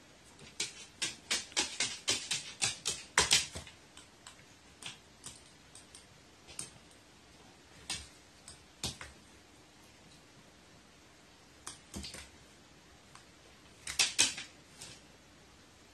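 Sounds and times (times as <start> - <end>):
bird claws clicking on wood: 0.5 - 3.7, 13.8 - 14.5.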